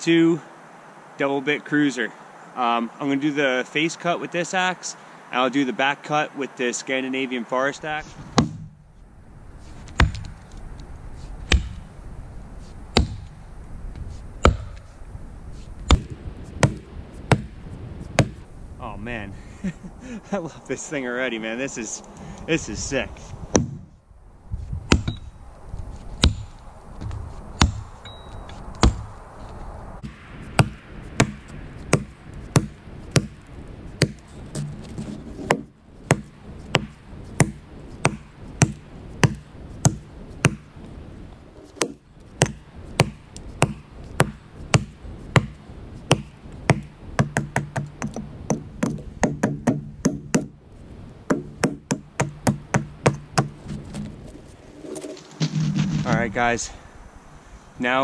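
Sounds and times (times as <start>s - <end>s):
axe chopping tree trunk: 8.4s - 8.8s, 9.9s - 10.4s, 11.4s - 11.9s, 12.9s - 13.4s, 14.4s - 15.0s, 15.9s - 18.4s, 23.5s - 23.9s, 24.8s - 25.2s, 26.2s - 26.6s, 27.6s - 28.0s, 28.8s - 29.1s, 30.0s - 40.7s, 41.6s - 50.6s, 51.3s - 54.2s.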